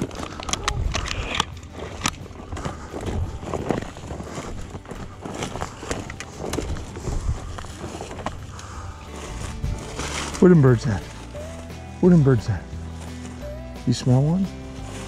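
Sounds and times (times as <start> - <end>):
shotgun handling clicks: 0.0 - 2.7
footsteps crunching through dry scrub: 0.0 - 15.0
rustling of brush and clothing: 0.0 - 15.0.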